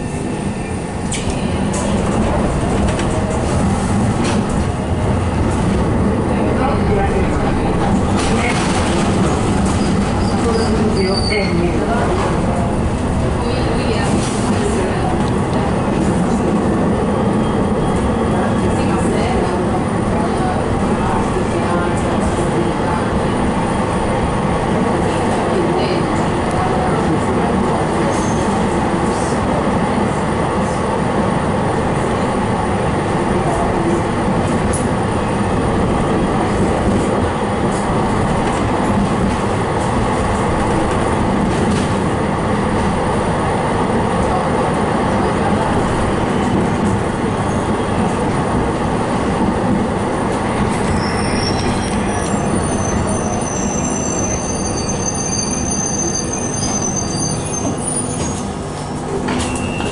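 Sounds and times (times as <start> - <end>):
rumble of tram wheels on rails: 0.0 - 59.9
high wheel squeal: 50.8 - 58.5, 59.4 - 59.9.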